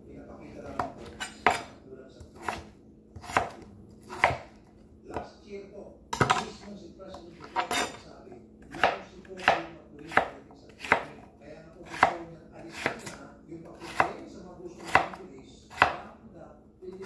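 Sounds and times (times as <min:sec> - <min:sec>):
knife chopping on cutting board: 0:00.6 - 0:05.3, 0:06.2 - 0:06.6, 0:07.4 - 0:08.0, 0:08.6 - 0:16.2.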